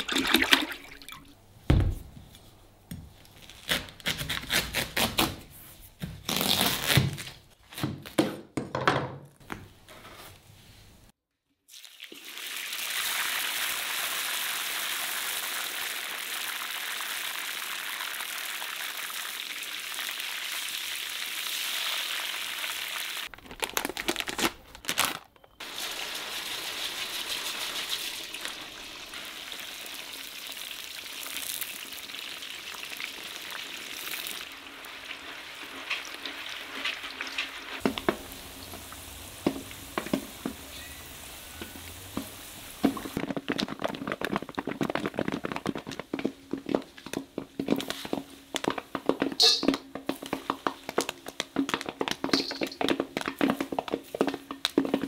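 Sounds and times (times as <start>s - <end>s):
hot oil sizzling: 11.7s - 23.3s, 25.6s - 43.3s, 44.0s - 55.0s
popcorn popping: 36.8s - 40.8s, 41.5s - 55.0s.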